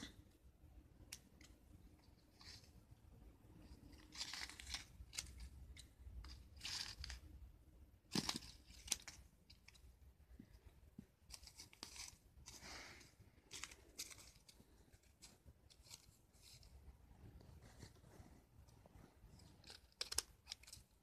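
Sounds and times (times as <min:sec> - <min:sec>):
paper rustling and tearing: 0:03.8 - 0:05.6
scissors cutting paper: 0:19.4 - 0:20.9.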